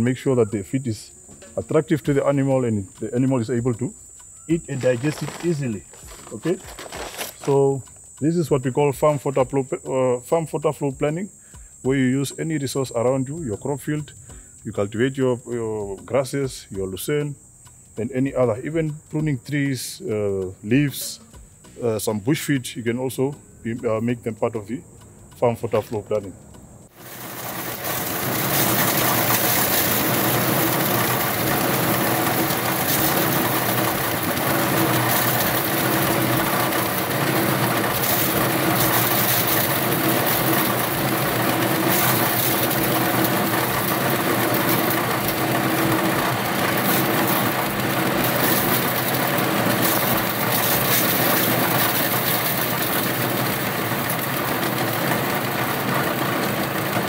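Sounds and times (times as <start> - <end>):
hammer mill grinding stalks: 0.0 - 10.4, 26.9 - 57.0.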